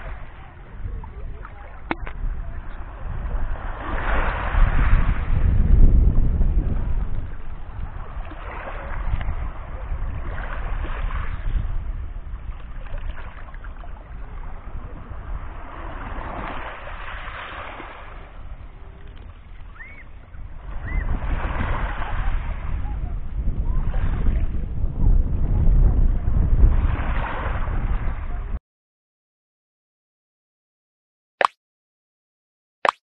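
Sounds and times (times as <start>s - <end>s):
waves washing over pebbles: 0.0s - 22.8s
wind rumbling on microphone: 0.0s - 28.6s.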